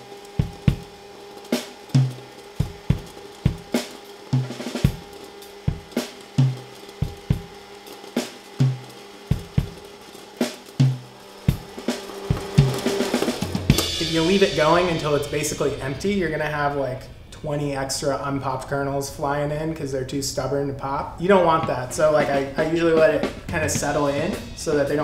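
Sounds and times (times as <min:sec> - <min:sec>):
drum kit playing a beat: 0:00.0 - 0:17.4, 0:21.0 - 0:25.0
cymbal strokes: 0:00.0 - 0:17.5
kick drum thumps: 0:05.7 - 0:07.5, 0:08.7 - 0:09.8.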